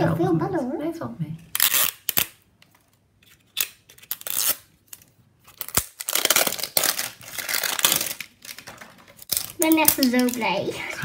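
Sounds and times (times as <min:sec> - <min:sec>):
sticker wrapper tearing: 0:01.5 - 0:02.4, 0:03.2 - 0:10.6.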